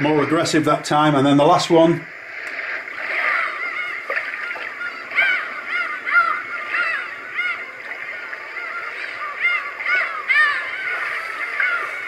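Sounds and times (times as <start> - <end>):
steady water sound: 0.0 - 12.0
bird calls: 2.4 - 12.0.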